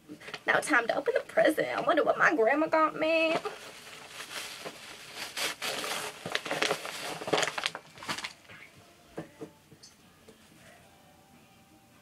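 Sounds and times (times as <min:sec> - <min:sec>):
wrapping paper crinkling and tearing: 0:03.3 - 0:08.5.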